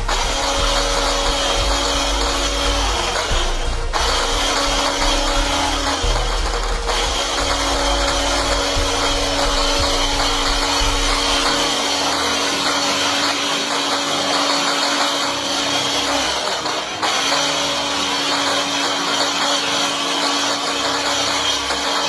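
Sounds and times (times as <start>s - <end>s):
low rumble: 0.0s - 12.6s
electric hand mixer whirring: 0.0s - 22.0s.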